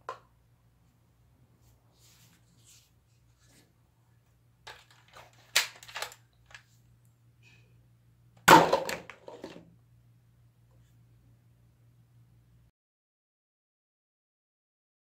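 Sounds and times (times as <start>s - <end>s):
plastic cups clattering: 8.5s - 9.6s.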